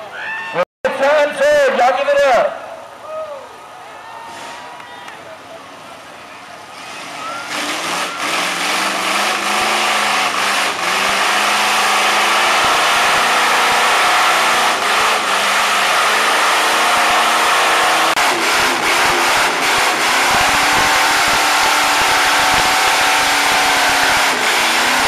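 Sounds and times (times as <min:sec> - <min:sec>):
tyres churning mud and water: 0:05.4 - 0:25.0
truck engine revving hard: 0:06.6 - 0:25.0.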